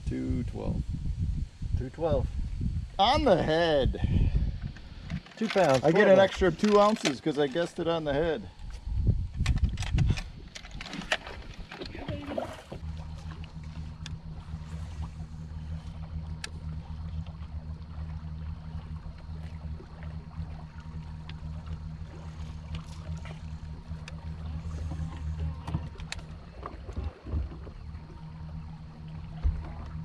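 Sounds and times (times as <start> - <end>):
electric motor humming: 11.3 - 30.0.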